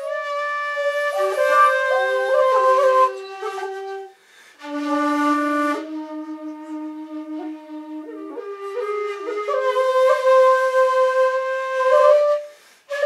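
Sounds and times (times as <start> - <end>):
bamboo flutes playing: 0.0 - 13.0.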